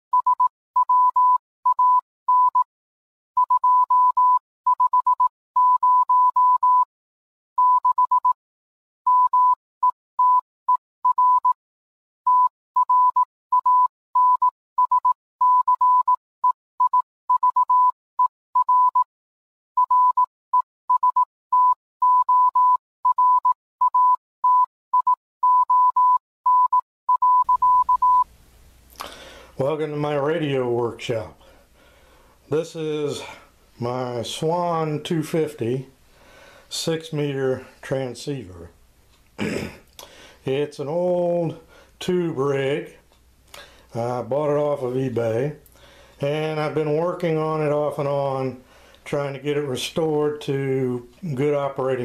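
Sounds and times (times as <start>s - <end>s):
morse code tone: 0.1s - 2.6s, 3.4s - 6.9s, 7.6s - 8.4s, 9.1s - 9.6s, 10.2s - 11.6s, 12.3s - 18.0s, 18.6s - 19.1s, 19.8s - 20.3s, 20.9s - 28.3s.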